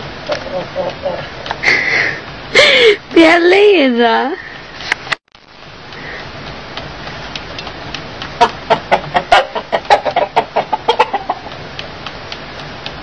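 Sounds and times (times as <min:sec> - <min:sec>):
steady hiss: 0:00.0 - 0:13.0
rooster clucking: 0:00.2 - 0:01.5, 0:08.3 - 0:11.6.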